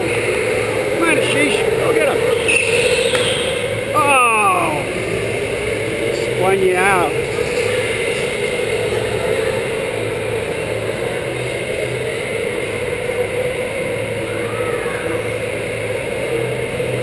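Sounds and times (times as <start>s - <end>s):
go-kart motor drone: 0.0s - 17.0s.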